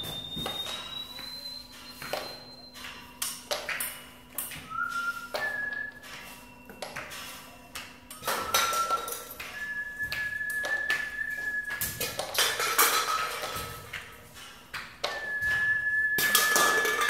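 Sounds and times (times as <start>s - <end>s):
whistle-like two-note tone: 0.0s - 2.8s, 4.6s - 6.8s, 8.2s - 12.0s, 15.1s - 17.0s.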